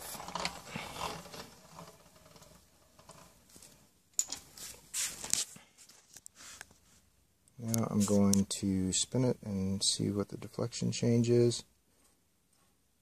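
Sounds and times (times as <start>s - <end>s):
rustling and scraping handling noise: 0.0s - 8.5s, 11.9s - 12.9s.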